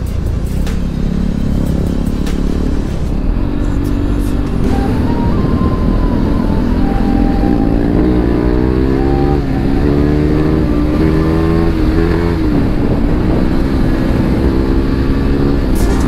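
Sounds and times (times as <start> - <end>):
motorcycle engine accelerating: 0.0 - 16.0
wind rushing: 0.8 - 16.0.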